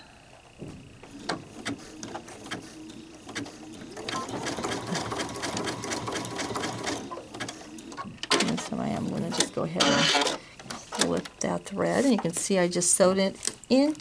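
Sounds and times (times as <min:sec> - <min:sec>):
sewing machine stitching: 0:01.1 - 0:11.2.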